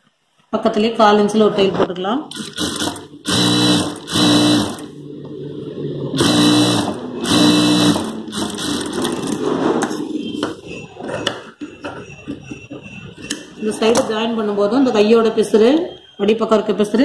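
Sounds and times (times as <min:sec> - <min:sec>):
sewing machine stitching: 0:02.3 - 0:04.9, 0:06.2 - 0:09.5.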